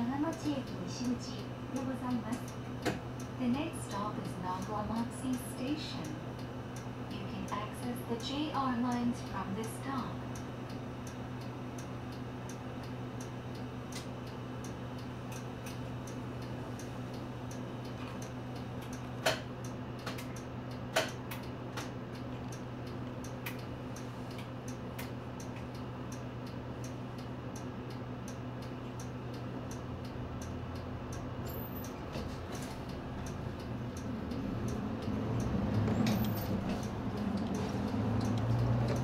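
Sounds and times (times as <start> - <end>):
indicator relay ticking: 0.1 - 32.1, 32.8 - 39.0
diesel engine idling: 29.5 - 39.0.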